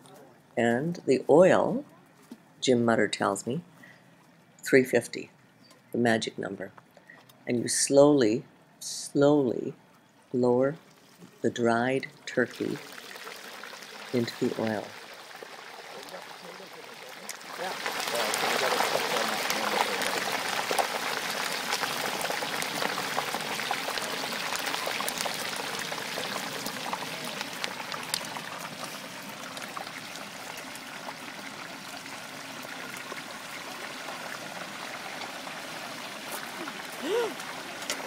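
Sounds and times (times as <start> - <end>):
oil bubbling and sizzling: 12.4 - 38.0.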